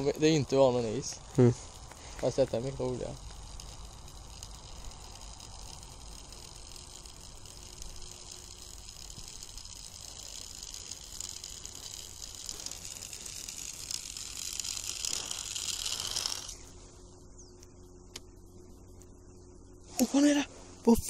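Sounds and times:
lure sliding over ice: 11.2s - 16.8s.

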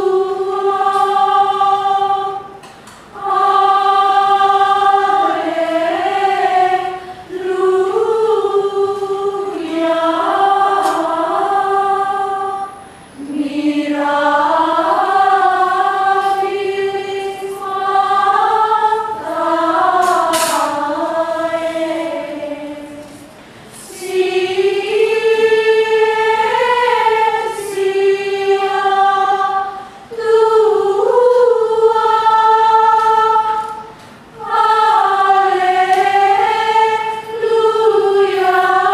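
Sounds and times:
women's choir chanting: 0.0s - 38.9s.

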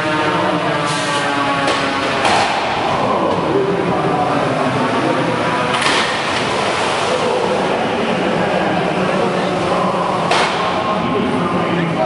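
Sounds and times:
crowd din in a hall: 0.0s - 12.0s
sharp knock: 10.3s - 10.7s.

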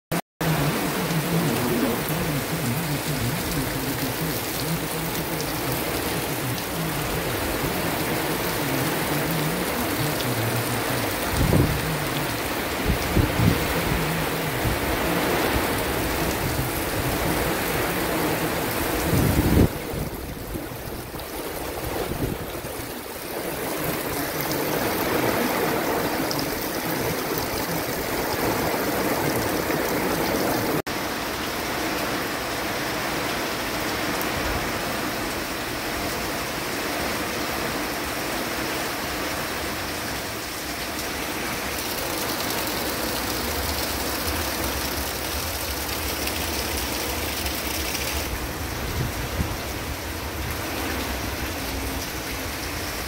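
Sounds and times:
heavy rain pouring: 0.1s - 53.0s
gusting wind: 9.4s - 30.1s, 41.0s - 53.0s.

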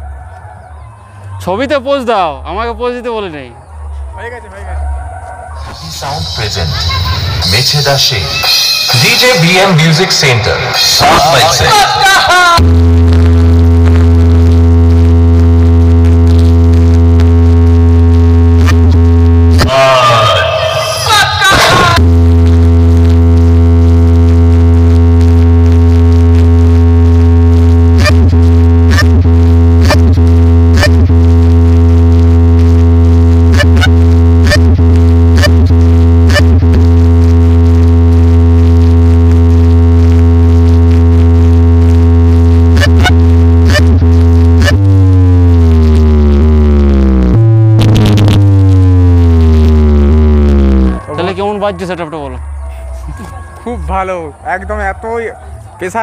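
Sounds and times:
deep bass drone from speakers: 0.0s - 4.2s, 12.6s - 56.0s
synth tone sliding downward: 41.6s - 52.8s
short sharp hits: 47.8s - 48.7s.

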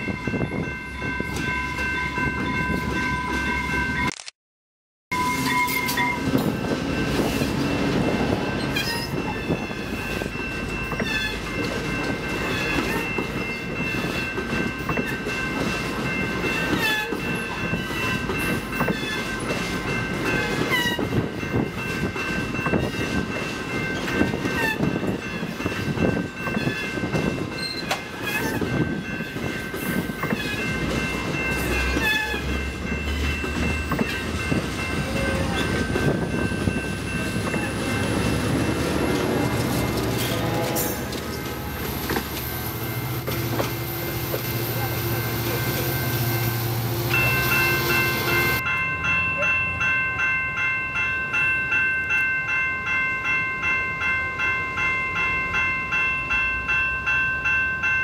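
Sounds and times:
level-crossing bell ringing: 0.0s - 4.1s, 5.1s - 58.0s
train wheels rumbling on rails: 5.2s - 48.8s.

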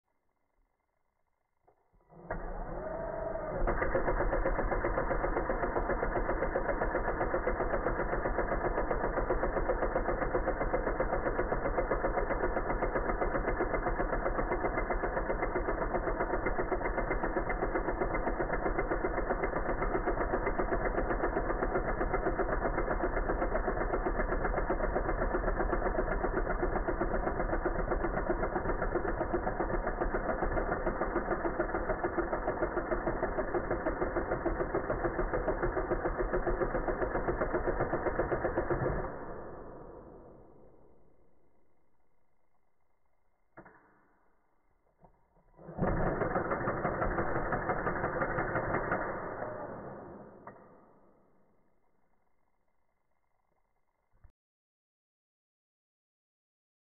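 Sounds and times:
impact driver rattling: 2.1s - 40.4s, 45.0s - 50.8s.

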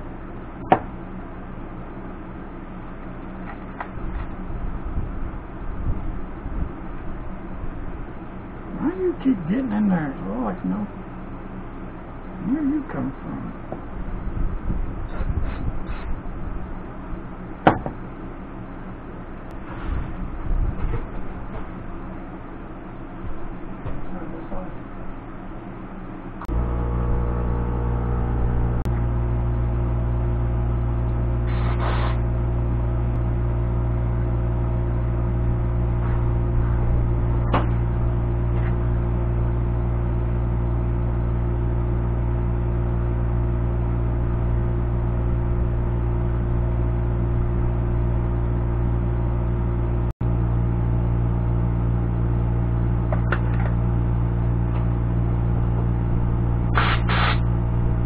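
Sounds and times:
machine humming: 26.2s - 58.0s
brief hiss: 31.5s - 32.2s, 56.8s - 57.4s.

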